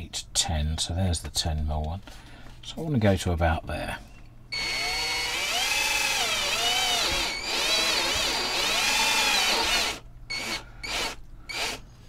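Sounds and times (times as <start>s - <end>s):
cordless drill boring through panel: 4.5s - 11.8s.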